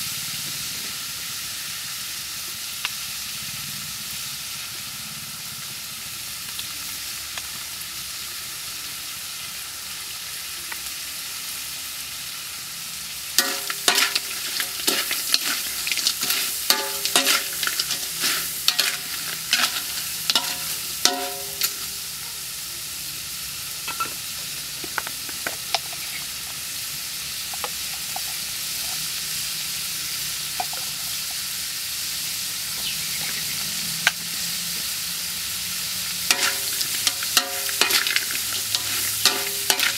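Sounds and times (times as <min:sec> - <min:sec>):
crabs sizzling in a wok: 0:00.0 - 0:39.9
metal spatula scraping a wok: 0:13.4 - 0:22.0, 0:36.3 - 0:39.9.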